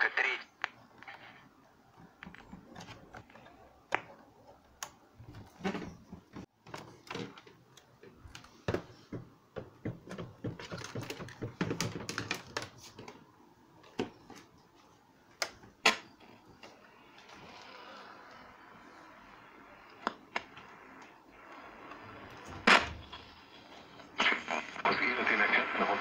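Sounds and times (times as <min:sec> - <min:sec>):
plastic cases knocking on wooden table: 0:08.7 - 0:12.6.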